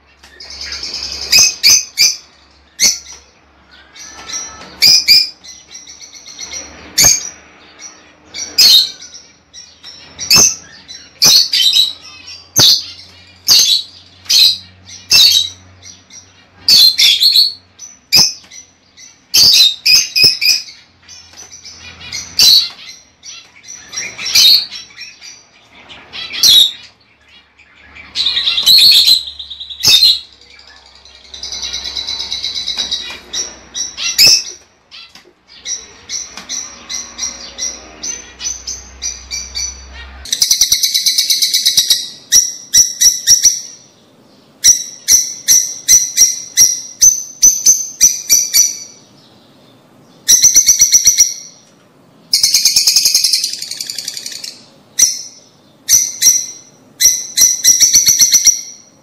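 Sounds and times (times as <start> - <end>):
lovebirds rapid chattering: 0.0 - 51.7, 52.3 - 59.0
lovebirds chirping and shrieking: 0.0 - 59.0.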